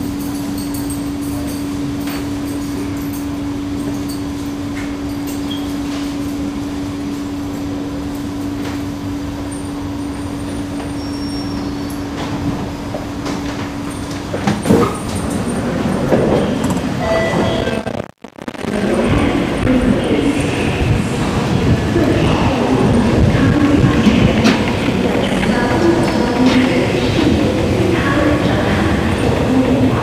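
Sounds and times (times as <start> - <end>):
train running noise: 0.0 - 17.9, 18.7 - 30.0
electric hum: 16.8 - 30.0.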